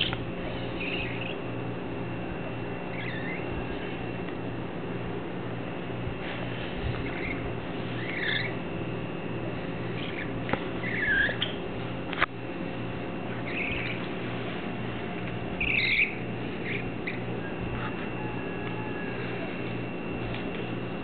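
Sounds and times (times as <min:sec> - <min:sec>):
young budgerigars chirping: 0:00.0 - 0:01.4, 0:02.9 - 0:03.5, 0:07.0 - 0:08.6, 0:10.0 - 0:11.6, 0:13.4 - 0:14.1, 0:15.6 - 0:17.3.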